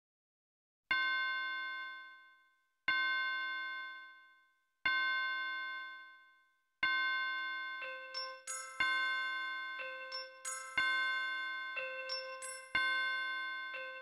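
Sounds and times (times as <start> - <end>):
bell-like chime ringing: 7.8 - 14.0.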